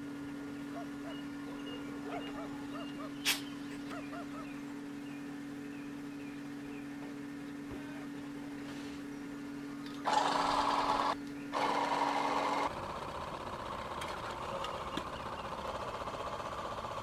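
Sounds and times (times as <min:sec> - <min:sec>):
small fan motor rattling: 0:09.2 - 0:17.0.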